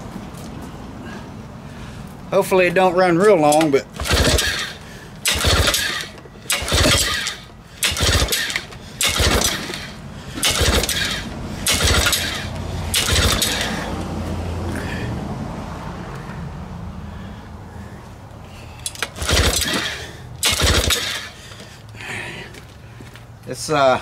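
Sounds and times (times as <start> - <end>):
starter rope pulls: 3.4 - 13.9, 18.8 - 21.7.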